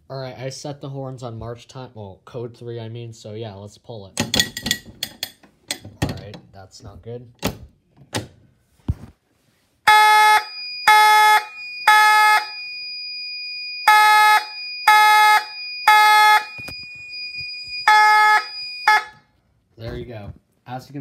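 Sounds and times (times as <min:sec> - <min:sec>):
fire alarm horn blasts: 0:09.9 - 0:19.4.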